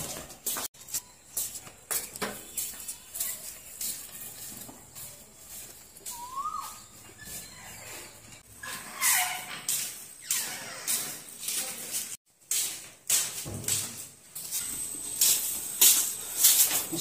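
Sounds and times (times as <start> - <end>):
footsteps on concrete steps: 0.0 - 7.5.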